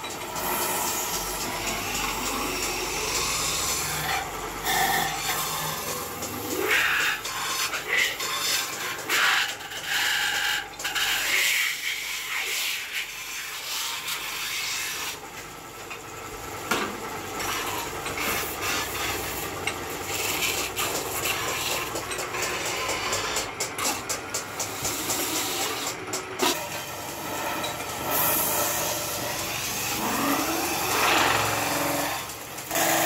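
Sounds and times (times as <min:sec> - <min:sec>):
tool scraping spinning metal: 0:00.0 - 0:33.0.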